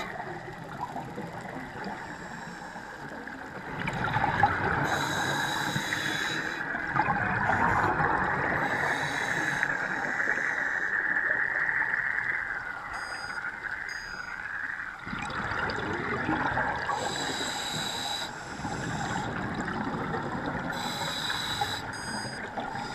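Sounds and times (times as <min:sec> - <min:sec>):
muffled rush of water: 0:00.0 - 0:22.9
faint high whistle: 0:12.9 - 0:14.3
bubbling regulator exhalation: 0:15.0 - 0:17.4.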